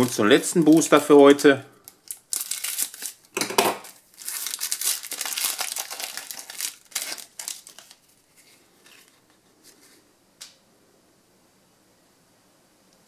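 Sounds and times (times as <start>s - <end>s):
foil pack crinkling: 1.8s - 9.3s.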